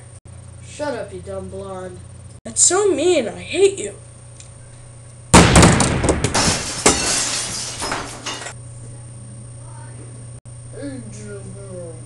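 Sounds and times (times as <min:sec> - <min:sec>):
glass shattering: 0:05.6 - 0:08.6.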